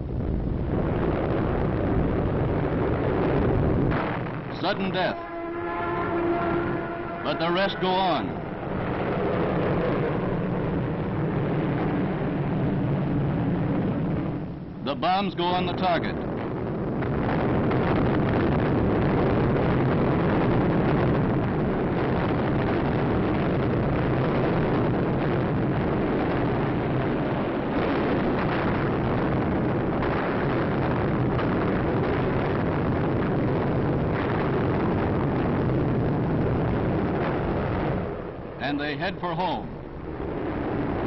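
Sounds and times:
bomber engine drone: 0:00.0 - 0:41.0
distant bomb bursts: 0:00.1 - 0:41.0.

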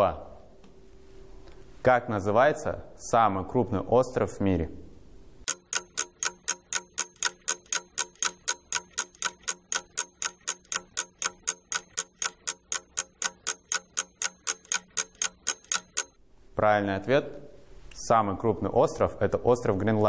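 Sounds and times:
clock ticking: 0:05.4 - 0:16.2.

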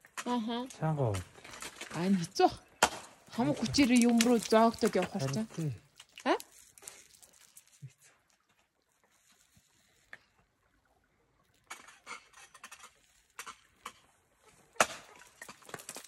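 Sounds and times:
ice tools striking ice: 0:02.8 - 0:07.1, 0:14.7 - 0:16.0.

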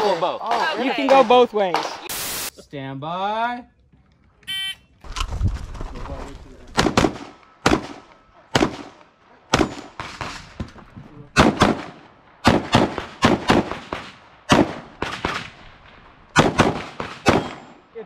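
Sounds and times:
pistol shots: 0:06.8 - 0:10.4, 0:11.4 - 0:15.6, 0:16.3 - 0:17.8.

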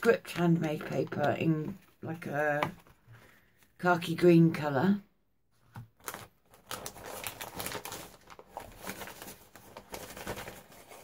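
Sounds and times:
paper rustling and crackling: 0:05.7 - 0:11.0.

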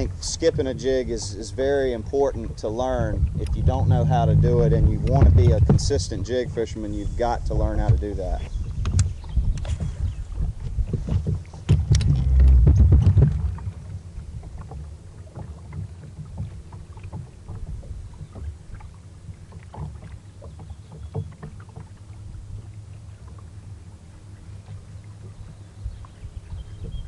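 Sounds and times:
boat engine rumble: 0:00.0 - 0:27.0
light knocks and clicks: 0:14.4 - 0:22.0.

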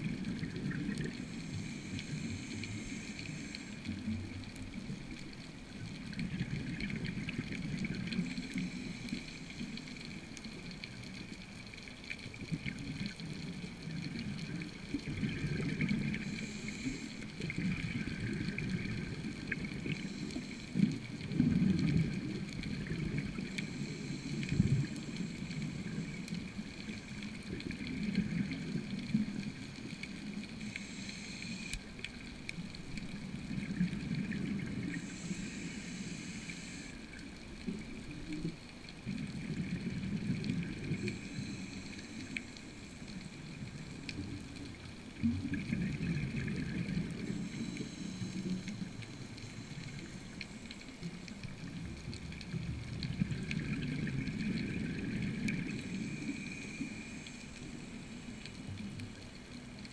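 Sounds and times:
muffled underwater water noise: 0:00.0 - 0:59.9
gurgling surge of bubbles: 0:45.2 - 0:47.6.

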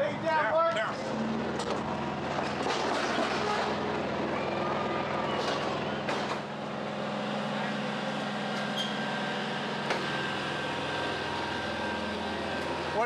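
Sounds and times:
truck engine humming: 0:00.0 - 0:13.0.

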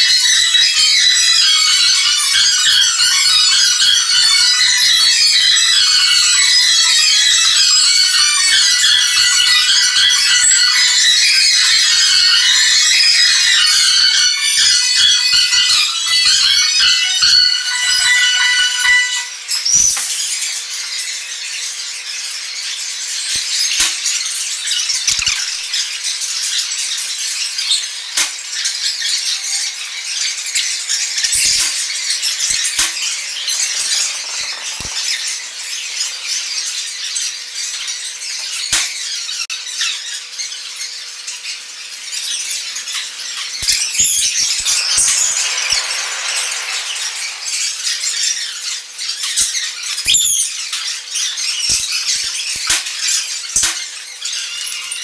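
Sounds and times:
broken glass crackling and scraping: 0:31.3 - 0:36.9, 0:43.6 - 0:48.6.

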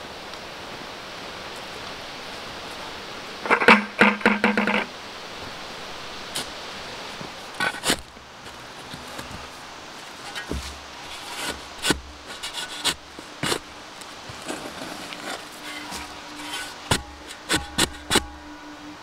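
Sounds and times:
shovel scraping into soil: 0:07.6 - 0:18.3
dull thud: 0:16.9 - 0:18.3.

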